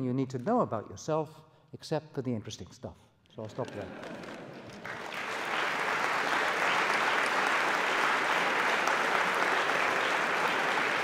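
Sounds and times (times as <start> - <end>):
large audience applauding: 3.4 - 11.0.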